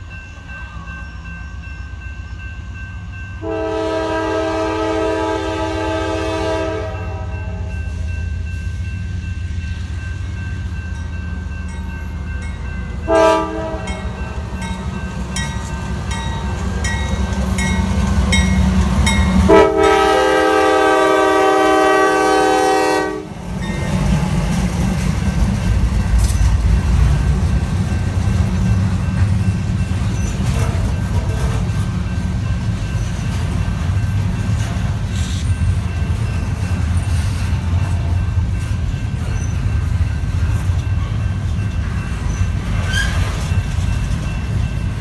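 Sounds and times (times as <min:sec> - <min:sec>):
diesel locomotive rumble: 0:00.0 - 0:45.0
locomotive horn: 0:03.4 - 0:07.8, 0:13.0 - 0:14.1, 0:19.3 - 0:23.4.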